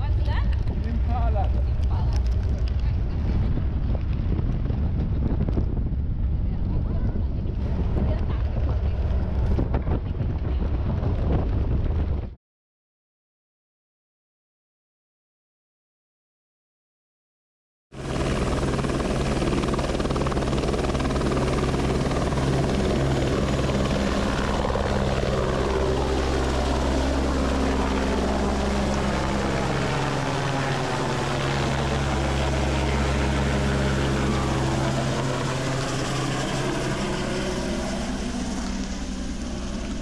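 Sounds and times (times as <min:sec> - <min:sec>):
helicopter rotor and engine: 0:00.0 - 0:12.3, 0:17.9 - 0:40.0.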